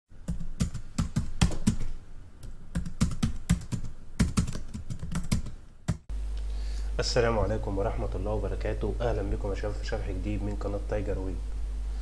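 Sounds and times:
keyboard typing: 0.2 - 6.1.

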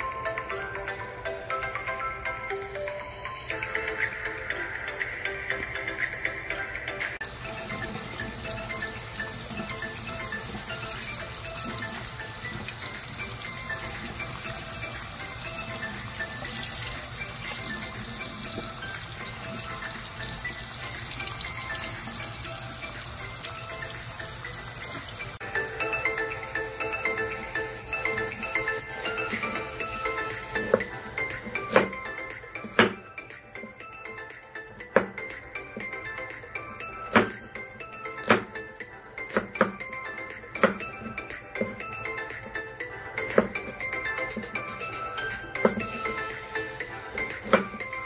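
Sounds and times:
background music: 0.0 - 48.0
tap water running into sink: 7.2 - 25.4, 26.9 - 33.1, 39.3 - 42.1, 43.2 - 46.4, 47.1 - 47.9.

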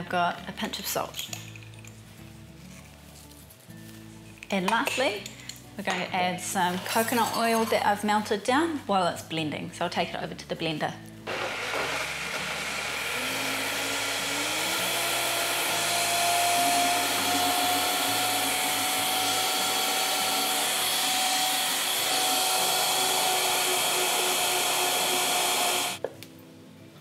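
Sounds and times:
blender motor running: 11.3 - 26.0.

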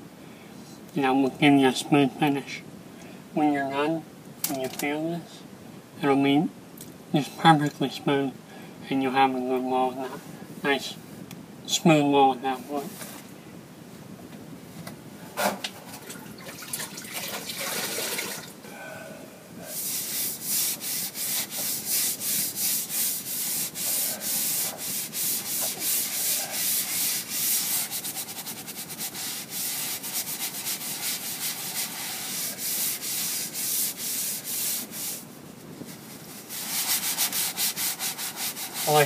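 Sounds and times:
damp sponge scrubbing drywall: 19.6 - 39.0.

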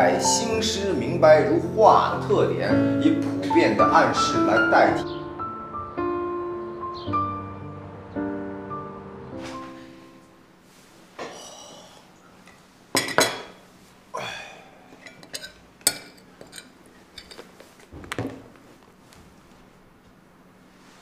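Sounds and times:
cutlery clinking on a plate: 12.5 - 13.6, 14.9 - 17.5.

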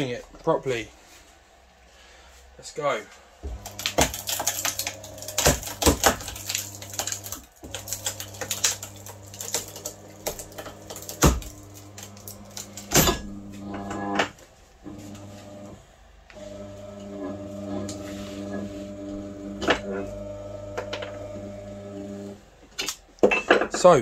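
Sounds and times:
electric motor humming: 3.4 - 14.2, 14.9 - 22.4
windings cracking and snapping: 3.6 - 13.0.

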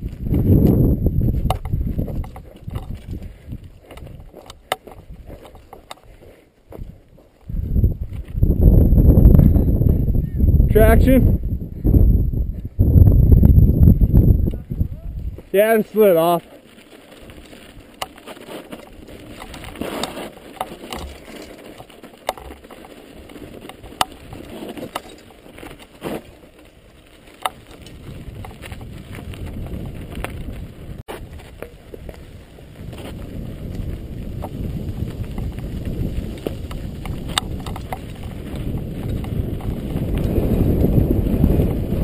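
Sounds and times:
wind rumble on microphone: 0.0 - 15.6, 26.6 - 42.0
bike tyres on gravel: 0.0 - 42.0
clicks and knocks of bike: 0.6 - 6.2, 16.6 - 41.0.

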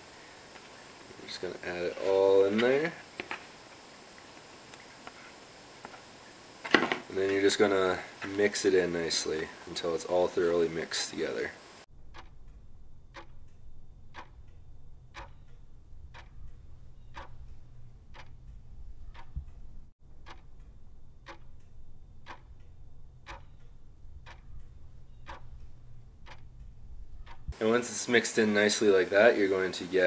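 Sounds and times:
clock ticking: 11.9 - 27.6
low hum: 11.9 - 27.6.

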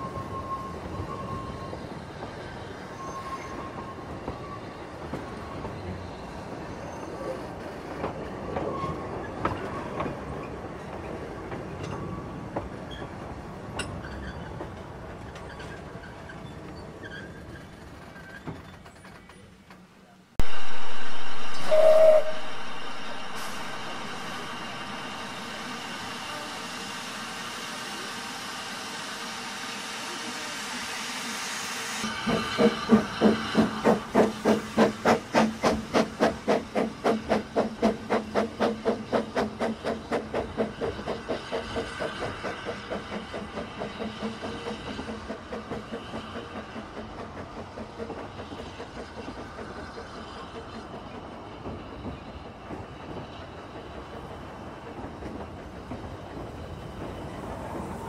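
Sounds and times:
carriages clicking over rail joints: 7.1 - 20.1
steam locomotive exhaust beats: 20.4 - 58.0
steam locomotive hissing: 20.4 - 58.0.

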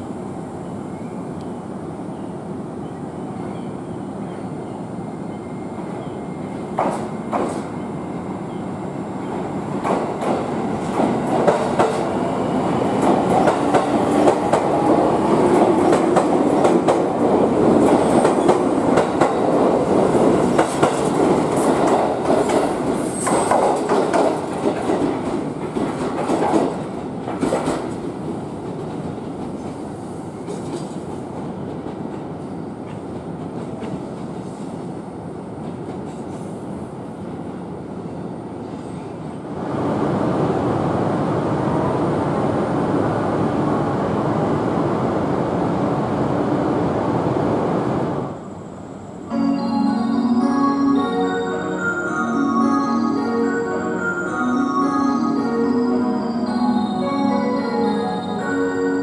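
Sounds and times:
train wheels clacking over rail joints: 20.6 - 28.0.

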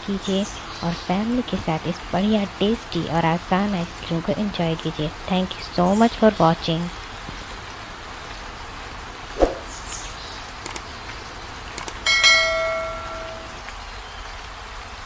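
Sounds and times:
whoosh: 9.4 - 9.8
mouse clicks: 10.6 - 10.8
notification bell ding: 12.1 - 13.6.

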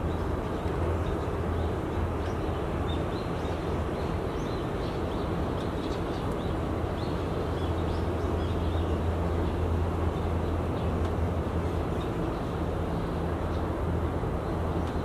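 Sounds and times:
small birds chirping: 0.0 - 11.1
low rumble of city noise: 0.0 - 15.0.

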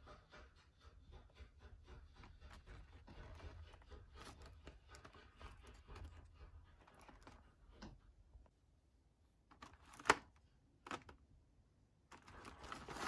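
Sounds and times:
dried mushrooms rustling: 12.1 - 13.0
plastic bag crinkling: 12.1 - 13.0.

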